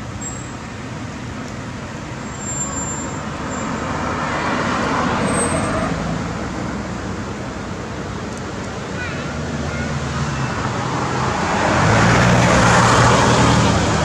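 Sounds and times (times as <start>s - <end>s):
car driving past: 10.4s - 14.0s.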